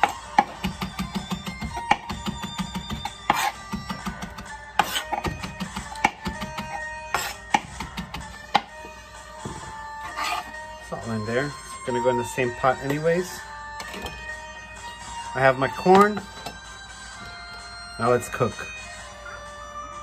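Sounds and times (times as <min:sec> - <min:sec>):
knife chopping on plastic board: 0:00.0 - 0:08.8
background music: 0:00.0 - 0:20.0.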